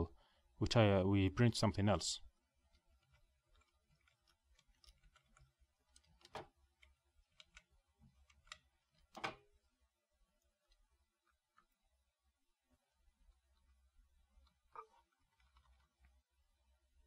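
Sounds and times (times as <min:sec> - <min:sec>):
computer keyboard and mouse clicks: 0:02.7 - 0:09.5.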